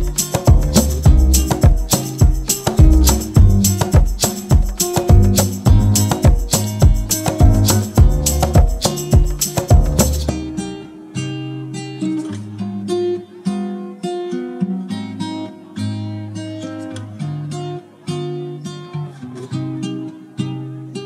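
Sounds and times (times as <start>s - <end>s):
loud music with sharp beat: 0.0s - 10.5s
acoustic guitar plucked and strummed: 0.0s - 21.0s.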